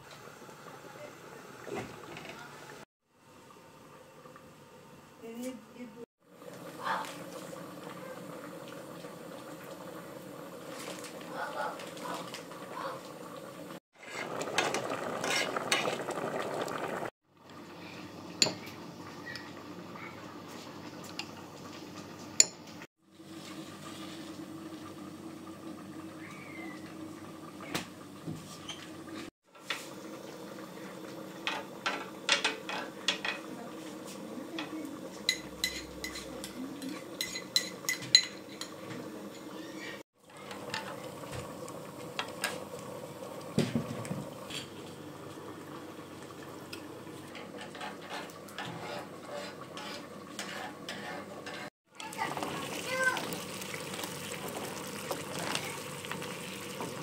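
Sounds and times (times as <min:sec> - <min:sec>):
pot bubbling at a boil: 0:06.2 - 0:57.0
metal spoon and pans clinking: 0:35.3 - 0:38.8.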